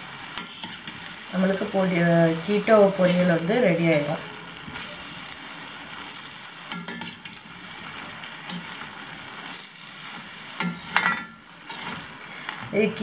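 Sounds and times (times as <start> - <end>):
vegetables sizzling in pan: 0.0 - 13.0
metal spatula scraping pan: 0.4 - 1.2, 2.4 - 5.0, 6.7 - 7.4, 8.4 - 8.9, 9.5 - 12.2.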